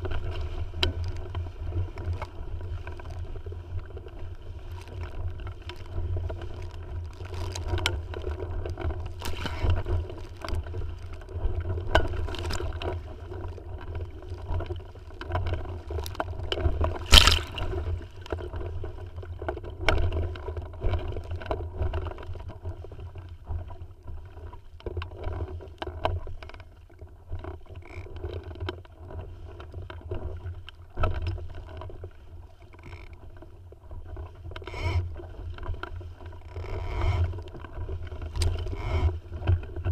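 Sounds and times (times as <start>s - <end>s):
water lapping against hull: 0.0s - 39.9s
sharp impact: 17.1s - 17.7s.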